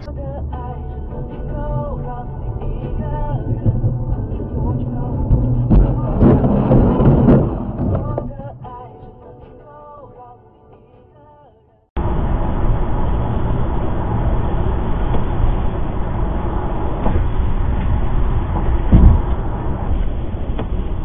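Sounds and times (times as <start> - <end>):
car driving at highway speed: 0.0 - 8.4
low thump: 3.2 - 8.5, 18.6 - 19.4.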